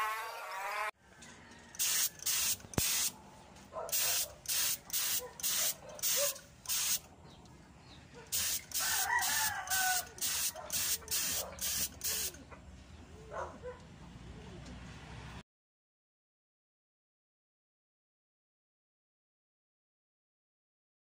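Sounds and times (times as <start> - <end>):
rooster crowing: 1.0 - 2.4, 8.7 - 10.8
spray gun hissing in bursts: 1.8 - 3.1, 3.9 - 7.0, 8.3 - 12.4.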